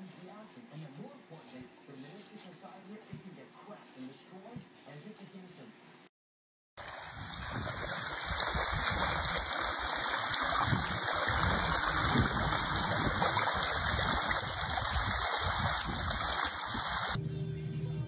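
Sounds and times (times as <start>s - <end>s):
dog splashing through water: 6.8s - 17.2s.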